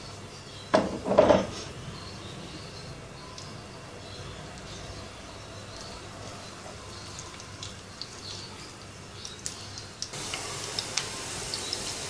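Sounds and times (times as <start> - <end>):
onions sizzling in oil: 4.6 - 12.0.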